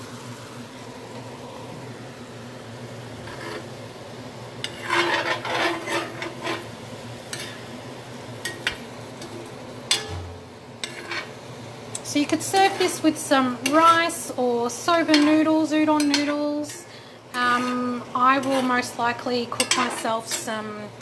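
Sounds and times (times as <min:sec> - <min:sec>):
food sizzling in a frying pan: 0:00.0 - 0:21.0
utensil scraping a pan: 0:03.2 - 0:03.7, 0:04.6 - 0:07.7, 0:08.5 - 0:11.4, 0:12.4 - 0:14.3, 0:14.9 - 0:20.6.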